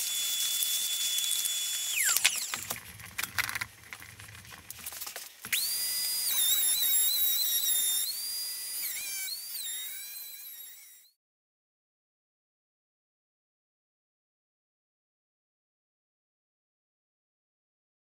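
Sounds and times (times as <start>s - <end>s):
wood router whining: 0.0s - 3.7s, 5.4s - 11.2s.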